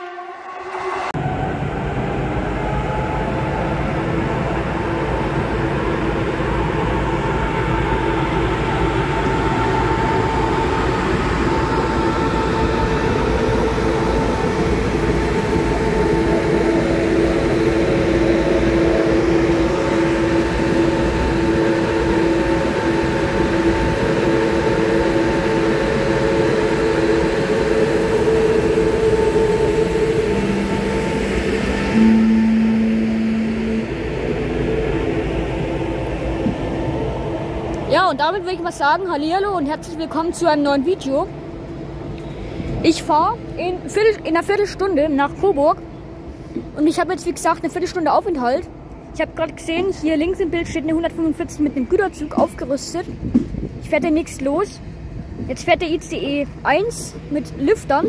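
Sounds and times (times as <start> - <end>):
train cooling fans humming: 0.0 - 58.0.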